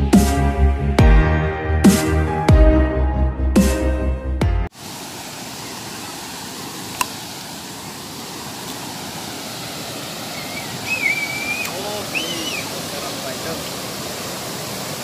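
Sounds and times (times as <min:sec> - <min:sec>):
waterfall rushing over rocks: 0:04.7 - 0:15.0.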